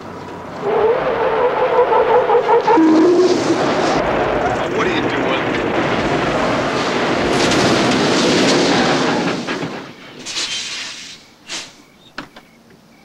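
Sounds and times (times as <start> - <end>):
semi-truck rushing noise: 0.0 - 12.0.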